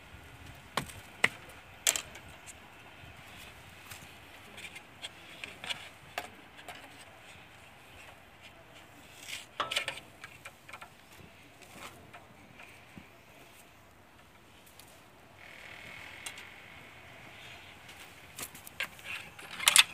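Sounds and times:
hands handling cable fittings: 3.4 - 15.0.

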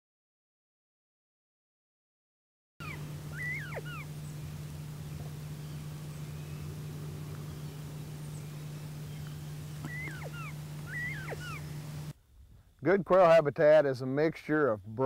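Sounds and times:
quail whistled call: 2.8 - 12.1
steady low hum: 2.8 - 12.8.

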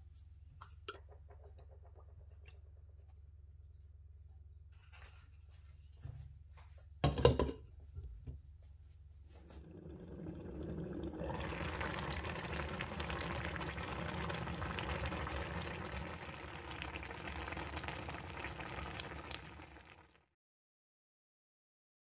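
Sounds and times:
sauce bubbling in a pan: 9.5 - 20.3.

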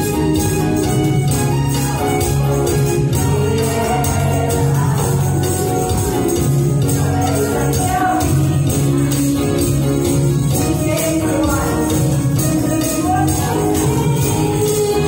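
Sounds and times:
amplified backing track: 0.0 - 15.0
tambourines jingling: 0.0 - 15.0
woman singing into a microphone: 10.5 - 15.0.

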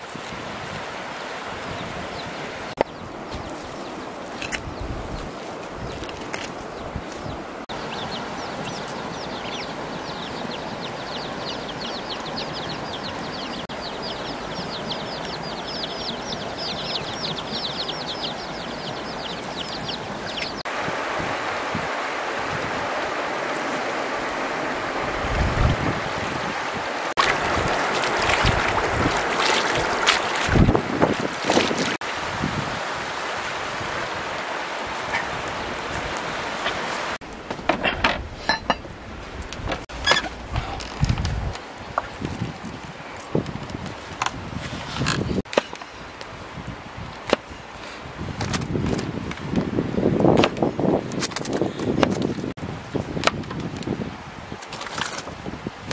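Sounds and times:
shallow river over stones: 0.0 - 25.1, 26.6 - 37.5
birds chirping: 1.2 - 20.7, 27.0 - 32.0
hands splashing in water: 27.2 - 32.0.

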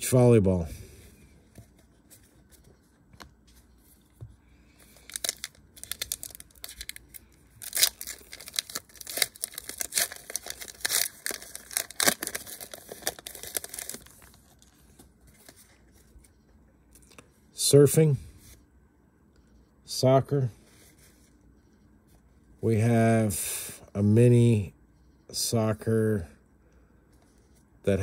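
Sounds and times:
foil wrapper tearing and crinkling: 5.0 - 14.7.

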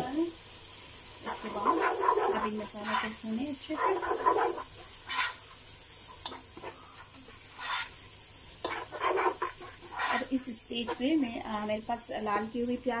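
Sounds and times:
paste sizzling in oil: 0.0 - 13.0
spatula scraping a pot: 1.2 - 5.6, 6.2 - 11.3.

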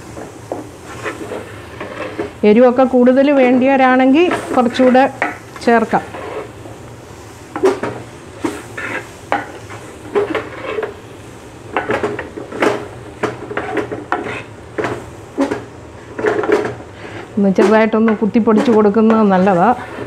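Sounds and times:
spatula scraping clay pot: 0.8 - 2.4, 4.3 - 6.6, 8.4 - 11.0, 13.4 - 14.6, 15.4 - 20.0.

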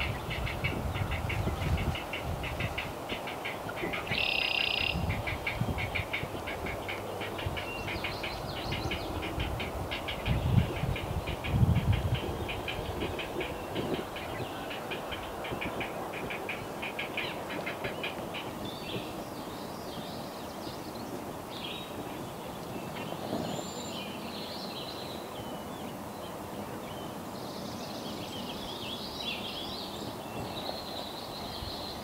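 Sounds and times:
swamp background: 0.0 - 32.0.

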